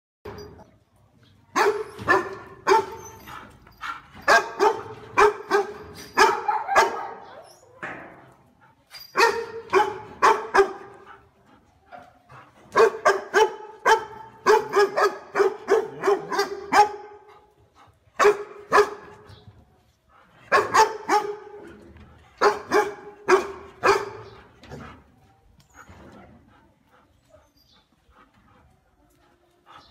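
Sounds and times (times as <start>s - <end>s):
dog barking: 1.6s - 3.0s, 4.3s - 7.3s, 9.2s - 11.0s, 12.8s - 17.3s, 18.2s - 19.1s, 20.5s - 21.6s, 22.4s - 24.3s.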